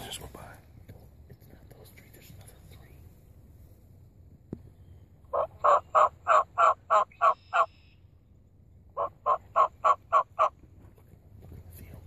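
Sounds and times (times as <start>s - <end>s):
turkey yelps: 5.3s - 7.9s, 9.0s - 10.6s.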